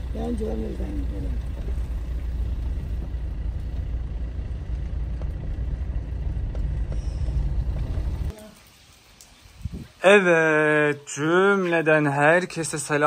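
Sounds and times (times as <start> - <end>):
car rumbling while driving: 0.0 - 8.3.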